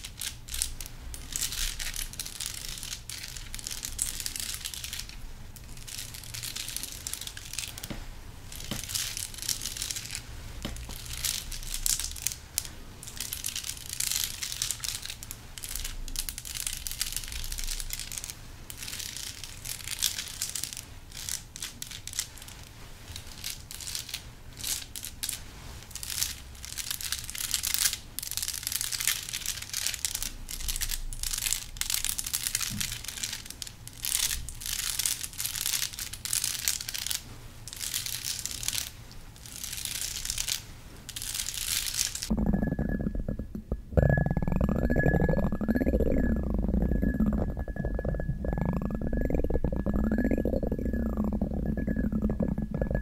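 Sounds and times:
crinkly rustling and clicks: 0.0s - 42.3s.

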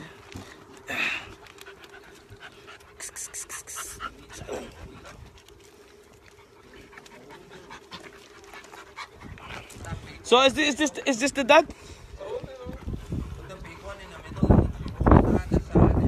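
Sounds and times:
puppy panting: 1.4s - 10.2s, 12.8s - 15.8s.

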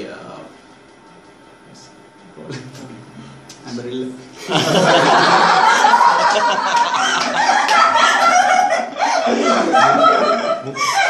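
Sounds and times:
group of people laughing: 4.4s - 11.0s.

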